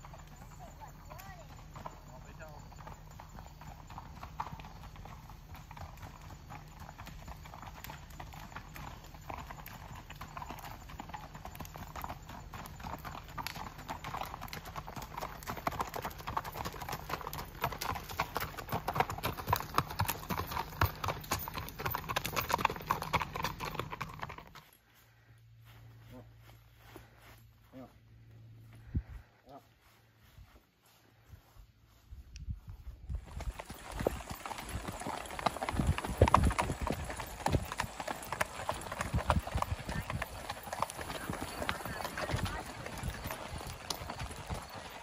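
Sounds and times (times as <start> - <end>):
horse hoofbeats on gravel: 0.0 - 24.9, 32.9 - 45.0.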